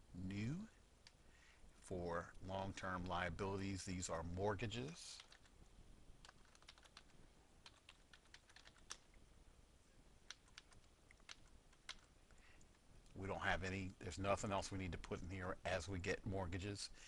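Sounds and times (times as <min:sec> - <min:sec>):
faint keyboard typing: 0:02.3 - 0:03.8, 0:04.6 - 0:09.2, 0:10.2 - 0:13.2, 0:14.7 - 0:15.8.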